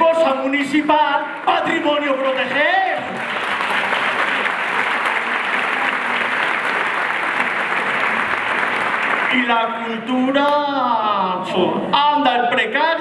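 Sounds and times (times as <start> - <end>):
audience applauding: 1.0 - 9.9.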